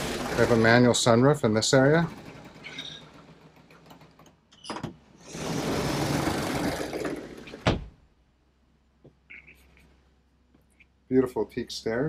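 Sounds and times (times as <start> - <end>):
sunroof sliding along track: 5.2 - 7.7
sunroof thud: 7.5 - 8.0.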